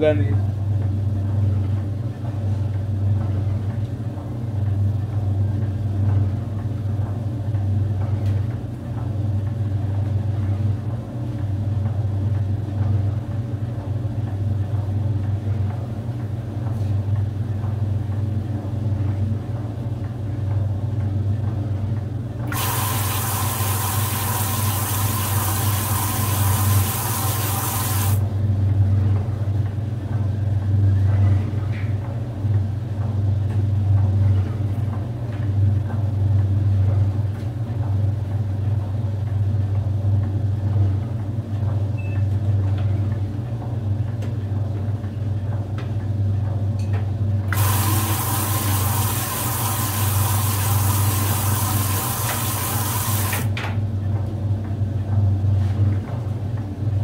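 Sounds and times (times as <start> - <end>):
washing machine motor hum: 0.0 - 57.0
water rushing into tub: 22.5 - 28.2, 47.6 - 53.5.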